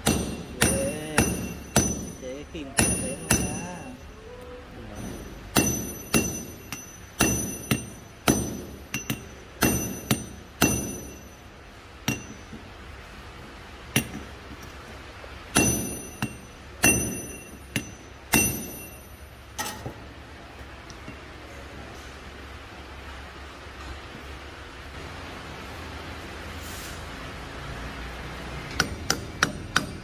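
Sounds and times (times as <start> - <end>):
hammer striking steel: 0.0 - 4.2, 4.9 - 12.7, 13.9 - 14.7, 15.5 - 20.0, 28.7 - 30.0.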